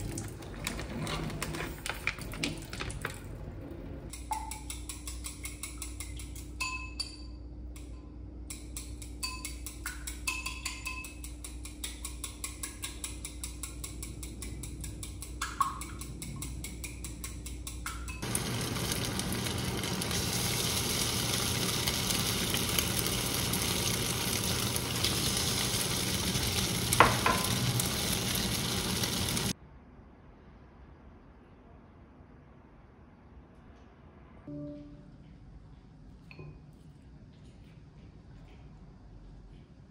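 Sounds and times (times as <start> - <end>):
chopsticks clicking against bowl: 4.1 - 6.8, 8.5 - 18.2
tofu sizzling in frying pan: 18.2 - 29.5.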